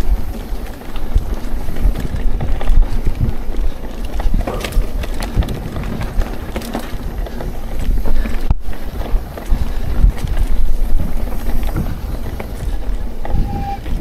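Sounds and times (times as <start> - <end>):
bike rattles and knocks: 0.0 - 14.0
bike tyres rumbling on dirt: 0.0 - 14.0
wind on microphone: 0.0 - 14.0.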